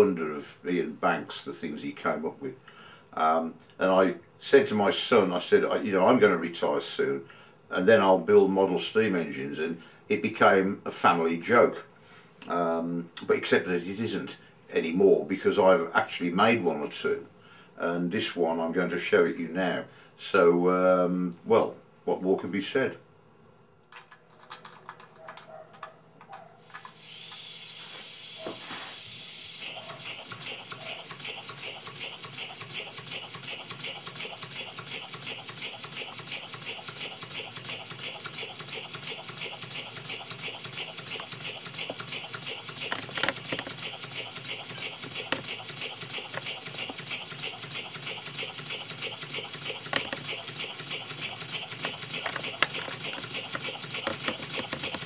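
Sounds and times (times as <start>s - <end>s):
model engine exhaust puffs: 26.8s - 55.0s.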